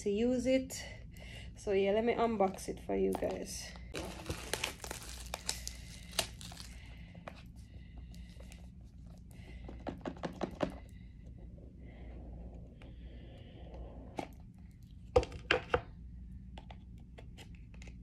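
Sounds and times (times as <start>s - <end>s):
packaging crinkling and tearing: 3.9s - 7.0s.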